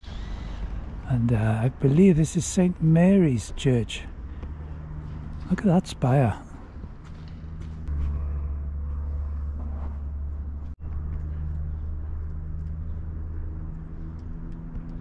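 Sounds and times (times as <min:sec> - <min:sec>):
vehicle engine rumbling: 0:00.0 - 0:15.0
droning tones: 0:06.7 - 0:15.0.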